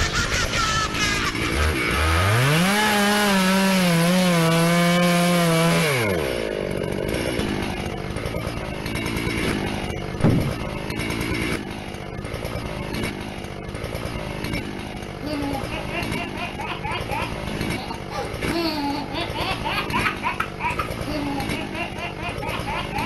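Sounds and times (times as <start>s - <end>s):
chainsaw revving: 0.0s - 23.0s
rough rasping: 0.0s - 23.0s
loud thump: 10.2s - 10.6s.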